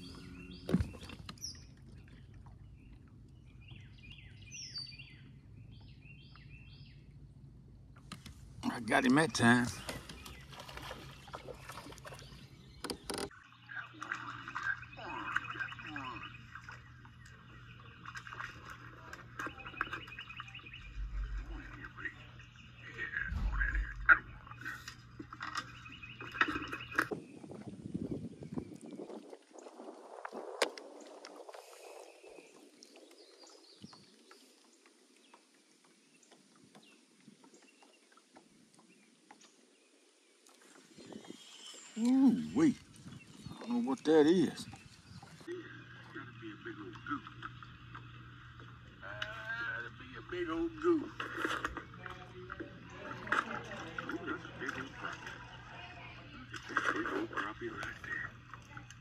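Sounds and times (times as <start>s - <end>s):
low hum: 19.2s - 26.8s.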